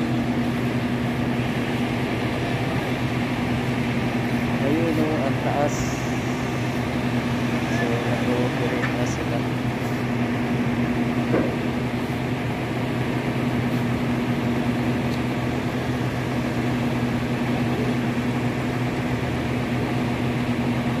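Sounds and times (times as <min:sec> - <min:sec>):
diesel engines running: 0:00.0 - 0:21.0.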